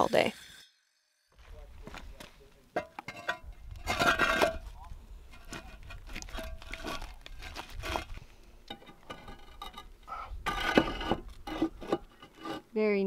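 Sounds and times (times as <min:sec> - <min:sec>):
concrete blocks knocking and scraping: 0:02.7 - 0:12.7.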